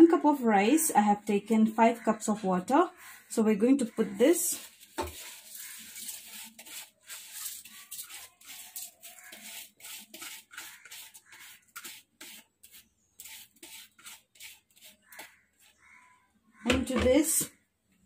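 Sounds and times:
rice scraped into water: 4.4s - 16.0s.

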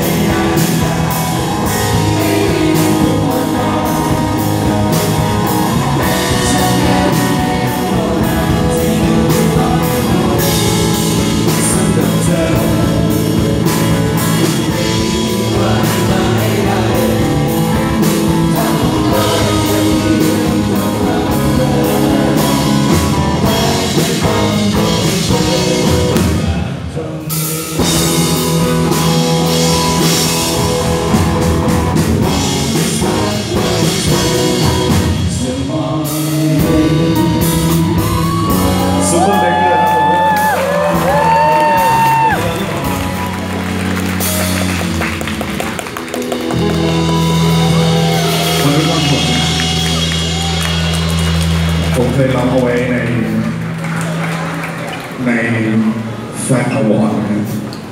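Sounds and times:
person singing: 0.0s - 43.6s, 46.5s - 50.9s
live rock band playing: 0.0s - 55.3s.

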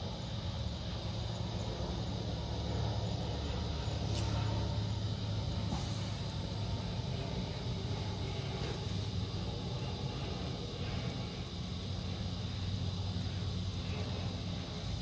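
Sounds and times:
wheelchair motor humming: 0.0s - 15.0s.

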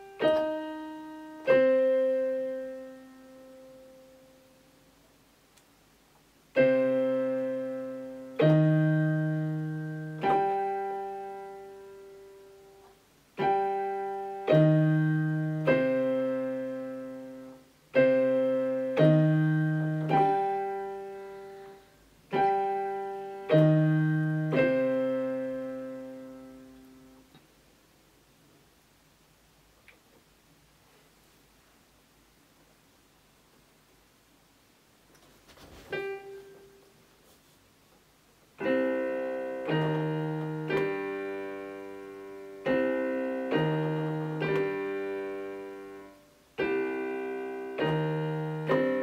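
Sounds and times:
keyboard piano chords: 0.0s - 5.0s, 6.5s - 27.4s, 35.8s - 37.0s, 38.5s - 49.0s.

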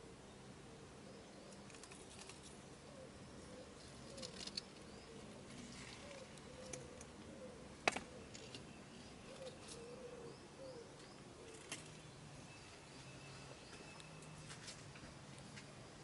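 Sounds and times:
bird hoots: 2.8s - 8.6s, 9.2s - 11.7s.

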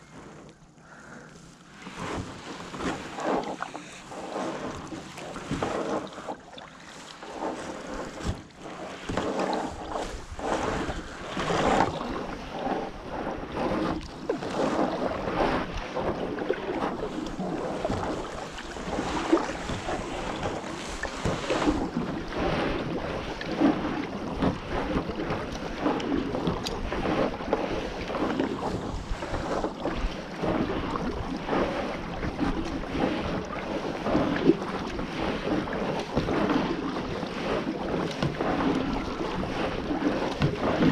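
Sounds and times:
paddle splashing in water: 0.0s - 40.9s
wind buffeting microphone: 9.5s - 40.9s.

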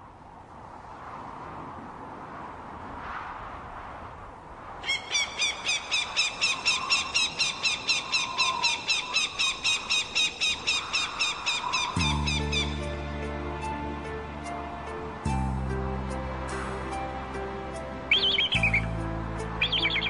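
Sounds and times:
low sustained music: 11.8s - 20.0s
high-pitched squeaky chirps: 18.1s - 18.9s.

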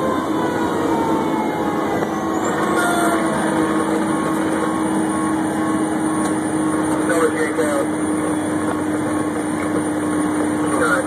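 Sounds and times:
siren sliding down in pitch: 0.0s - 7.6s
engine drone: 0.0s - 11.0s
road noise: 0.0s - 11.0s.

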